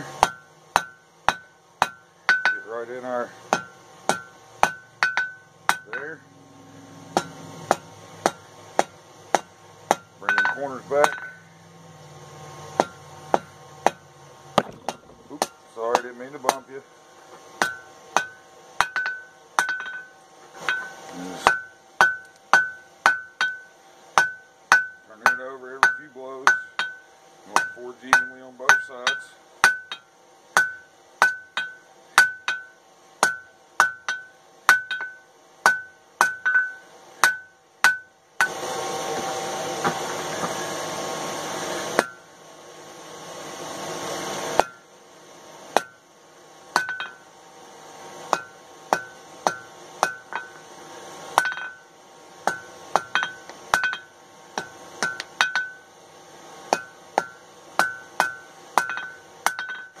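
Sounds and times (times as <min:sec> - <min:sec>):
hammer ringing on anvil: 0:00.2 - 0:02.9, 0:03.5 - 0:06.3, 0:07.1 - 0:11.5, 0:12.8 - 0:14.0, 0:17.6 - 0:38.6, 0:42.0 - 0:42.3, 0:44.6 - 0:44.8, 0:45.8 - 0:46.0, 0:46.8 - 0:47.3, 0:48.3 - 0:50.6, 0:51.4 - 0:51.9, 0:52.5 - 0:55.9, 0:56.7 - 1:00.0.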